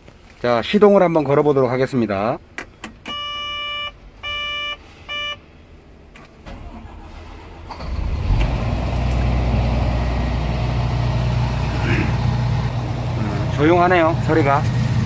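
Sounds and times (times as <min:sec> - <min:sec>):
diesel engine starting and idling: 0:03.0 - 0:15.0
electronic beeps: 0:03.1 - 0:05.5.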